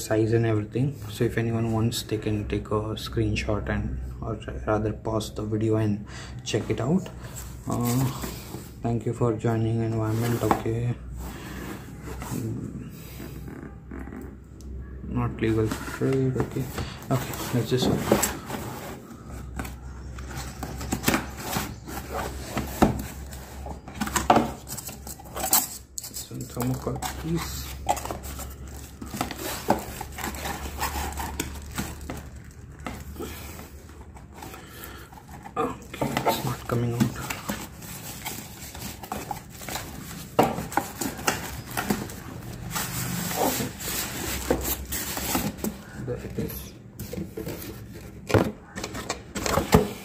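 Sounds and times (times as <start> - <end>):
cardboard rubbing and scraping: 9.8 - 12.7, 15.4 - 25.4, 26.3 - 50.0.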